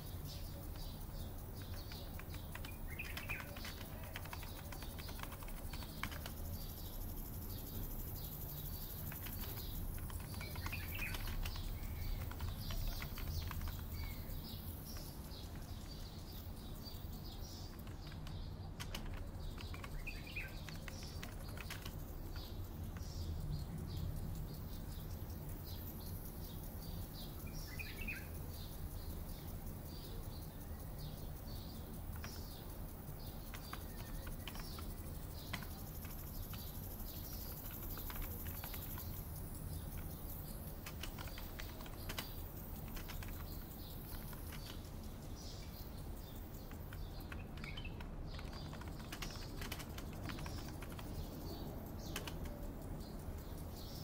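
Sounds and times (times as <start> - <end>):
small birds chirping: 0.0 - 54.0
keyboard typing clicks: 0.3 - 6.9, 8.7 - 23.3, 32.0 - 52.7.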